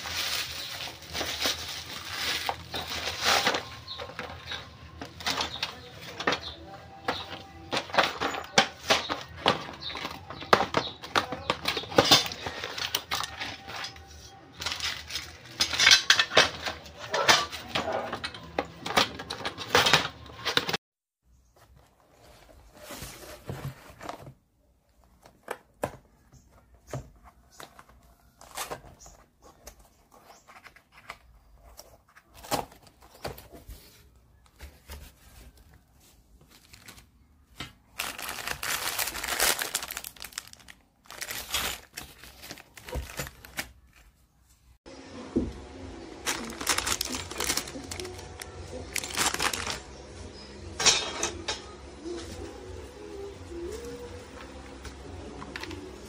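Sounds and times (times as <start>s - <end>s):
plastic wrap crinkling: 0.0s - 6.4s, 7.0s - 16.6s, 34.8s - 44.2s, 46.2s - 49.9s
cardboard box rustling and scraping: 22.0s - 24.4s.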